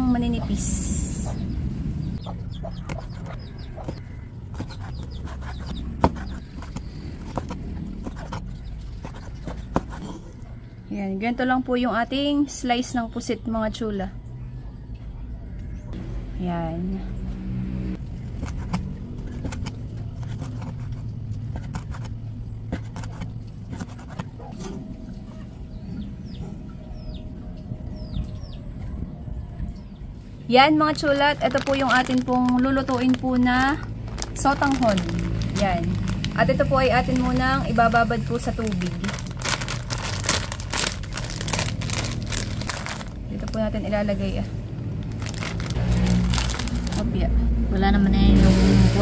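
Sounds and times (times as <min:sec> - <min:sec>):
low steady hum: 0:00.0 - 0:49.0
chickens clucking: 0:00.2 - 0:06.8.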